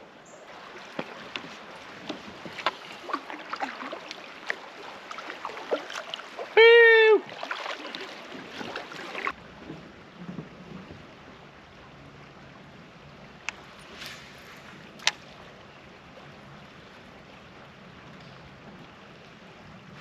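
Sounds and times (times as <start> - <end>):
slow river water flowing: 0.0 - 20.0
gear knocking in kayak: 0.9 - 3.3.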